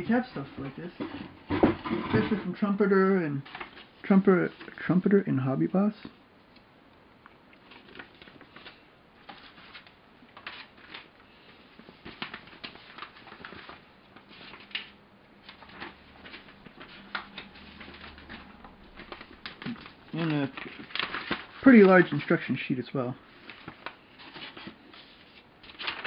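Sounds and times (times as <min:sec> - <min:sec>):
paper and plastic bags rustling: 0:07.6 - 0:26.0.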